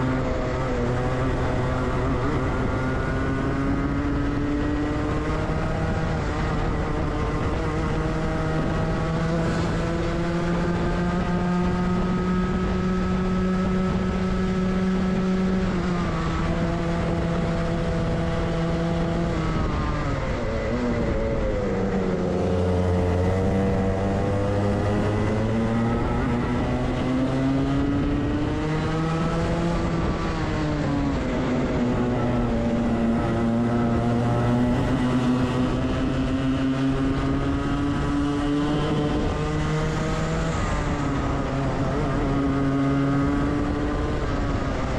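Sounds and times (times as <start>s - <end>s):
kart engine revving: 0.0s - 44.9s.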